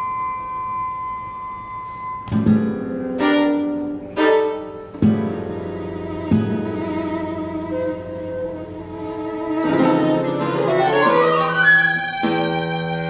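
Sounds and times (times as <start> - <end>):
flute: 0.0 - 4.1, 7.5 - 13.0
classical guitar plucking: 2.2 - 13.0
violin: 2.3 - 13.0.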